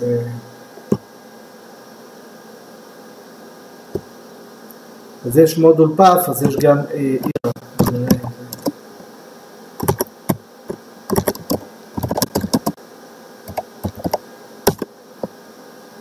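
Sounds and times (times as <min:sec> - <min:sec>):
computer keyboard typing: 0:07.8 - 0:08.7, 0:09.8 - 0:10.4, 0:11.1 - 0:12.8, 0:13.5 - 0:14.8.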